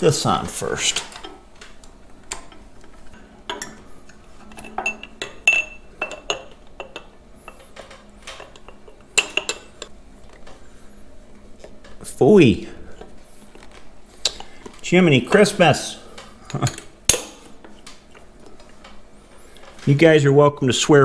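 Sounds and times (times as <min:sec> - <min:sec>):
glass and metal clinking: 0:04.4 - 0:09.9.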